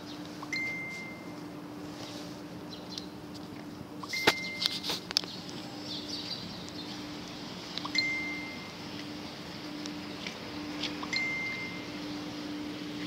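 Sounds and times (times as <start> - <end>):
low hum: 0.0 - 13.0
short high beep: 0.5 - 1.3, 4.0 - 4.8, 11.1 - 11.9.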